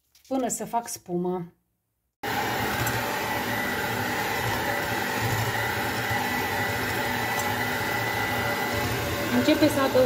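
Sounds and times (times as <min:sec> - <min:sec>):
electric hand mixer whining: 0:02.2 - 0:10.0.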